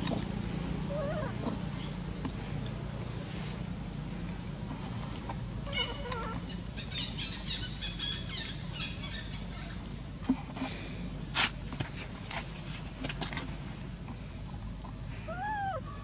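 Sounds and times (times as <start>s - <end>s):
baby monkey squealing: 0.9s - 1.4s, 15.3s - 15.9s.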